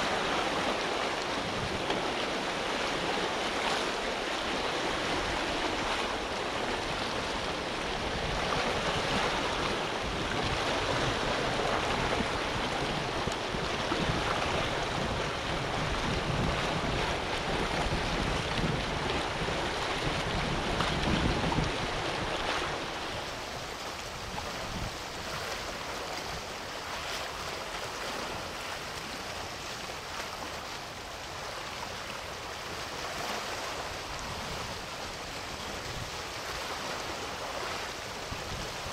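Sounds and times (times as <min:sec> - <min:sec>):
wind and sea water rushing: 0:00.0 - 0:38.9
wind buffeting microphone: 0:04.5 - 0:29.8, 0:33.7 - 0:38.9.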